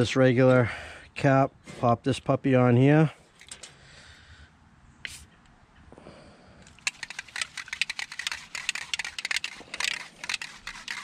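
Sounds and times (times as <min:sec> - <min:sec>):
plastic clicks and crackles: 0:06.7 - 0:11.0.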